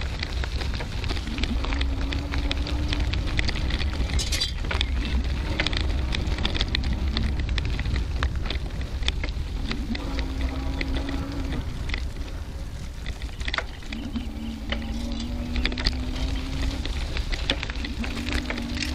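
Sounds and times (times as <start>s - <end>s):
bicycle tyres crunching on gravel: 0.0s - 18.9s.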